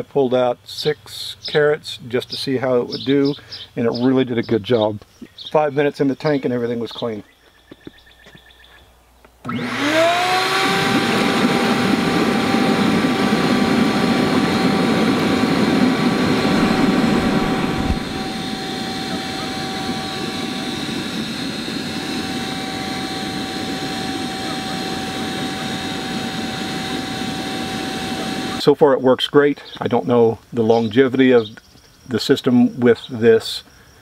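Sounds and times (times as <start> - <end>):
shop vac motor whine: 9.4 - 28.6
water churning with bubbles: 16.3 - 18.6.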